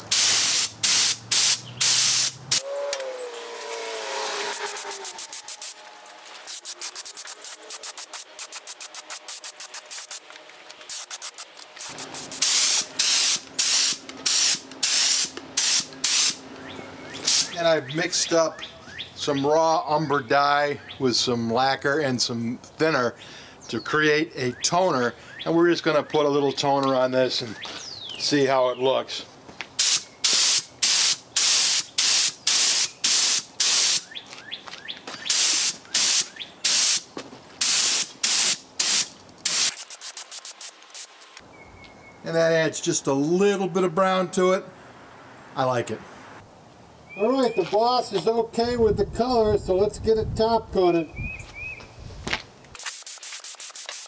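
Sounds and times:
spray gun hissing: 0.0s - 2.7s, 4.5s - 5.8s, 6.4s - 10.3s, 10.9s - 16.4s, 17.2s - 17.6s, 29.8s - 34.0s, 35.3s - 37.0s, 37.6s - 41.2s, 52.8s - 54.0s.

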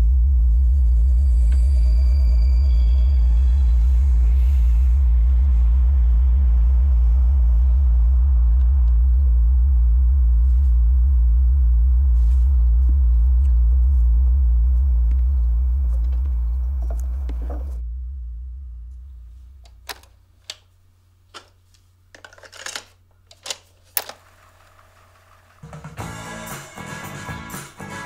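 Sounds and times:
deep pulsing low drone: 0.0s - 20.4s.

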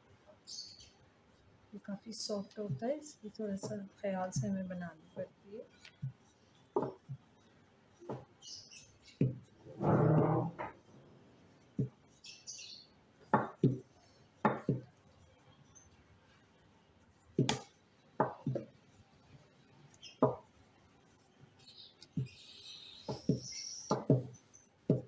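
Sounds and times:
rolling pin knocking on board: 14.4s - 14.9s.

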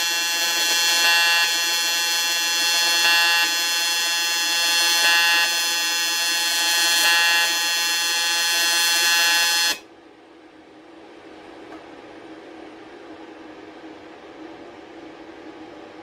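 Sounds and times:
welding arc buzzing: 0.0s - 9.8s.

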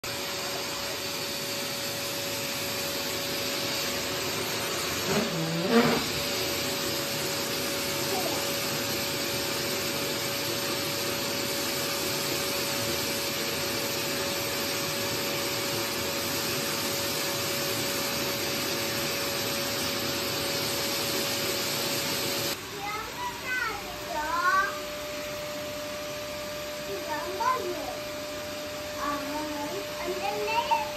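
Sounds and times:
vacuum cleaner running: 0.0s - 30.9s
short rising squeal: 5.0s - 6.4s.

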